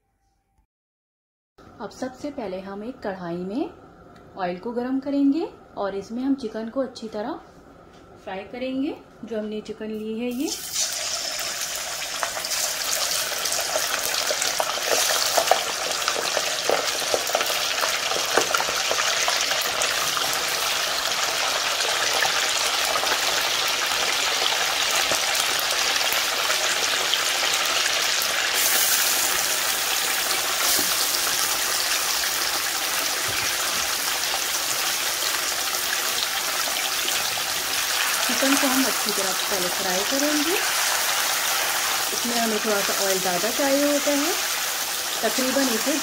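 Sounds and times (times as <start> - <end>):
chicken deep-frying in oil: 10.3 - 46.0
oil crackles: 10.7 - 20.2.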